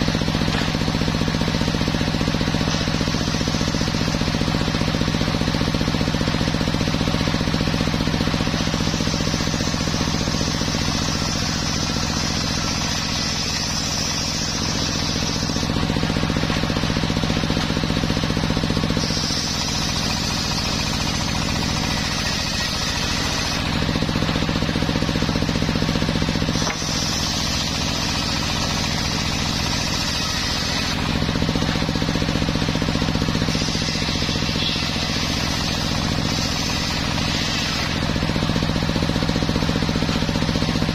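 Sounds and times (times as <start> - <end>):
saw drive hum: 0.0 - 40.9
circular saw blade ripping boards: 26.5 - 31.3, 33.4 - 38.3.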